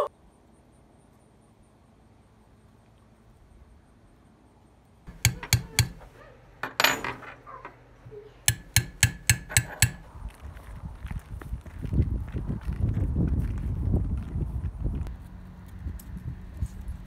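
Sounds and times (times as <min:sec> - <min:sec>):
hammer striking metal punch: 0:05.1 - 0:07.2, 0:08.5 - 0:10.1.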